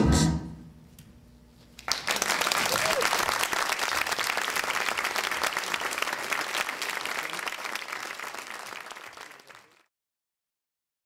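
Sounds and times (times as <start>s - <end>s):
audience applauding: 1.8s - 9.9s.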